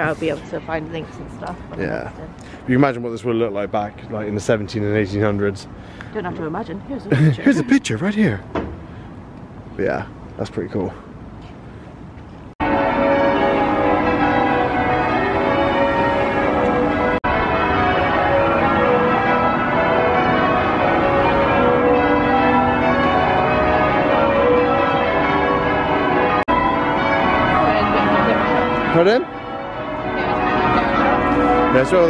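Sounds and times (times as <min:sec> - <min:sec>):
church bells pealing: 0:12.6 - 0:32.0.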